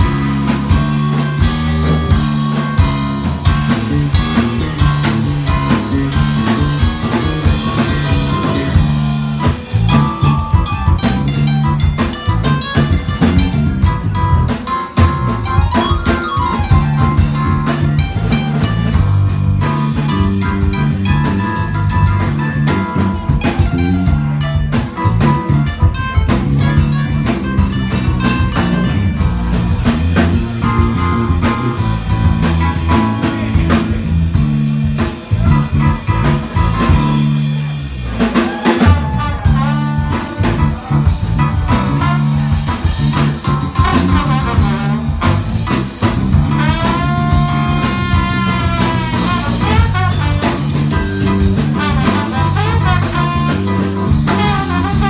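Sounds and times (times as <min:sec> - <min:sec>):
live jazz band playing: 0:00.0 - 0:55.0
trombone sliding notes: 0:00.0 - 0:55.0.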